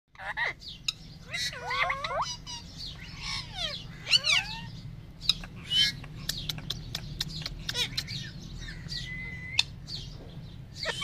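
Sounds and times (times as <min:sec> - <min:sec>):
parakeets chirping and whistling: 0:00.1 - 0:11.0
sharp bird clicks: 0:05.2 - 0:10.3.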